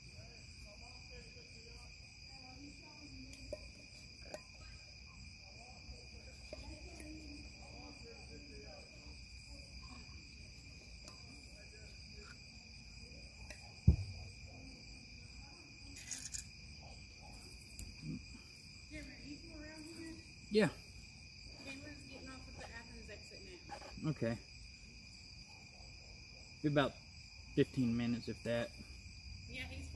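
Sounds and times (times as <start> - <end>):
crickets trilling: 0.0 - 29.9
faint distant voices: 0.0 - 29.9
sharp thump: 13.8 - 14.3.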